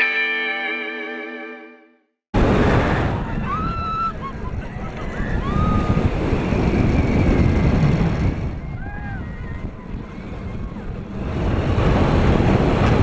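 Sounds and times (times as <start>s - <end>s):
electric guitar chord: 0.0s - 1.8s
roller coaster train rumble: 2.4s - 13.0s
wind rushing over microphone: 2.4s - 13.0s.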